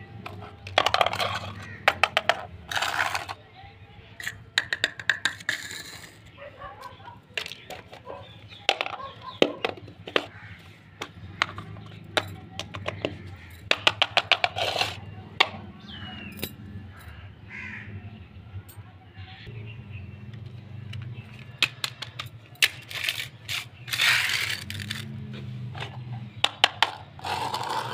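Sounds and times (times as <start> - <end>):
plastic toys clicking on stone floor: 0.2 - 3.4, 4.2 - 10.4, 11.0 - 15.7, 20.4 - 27.9.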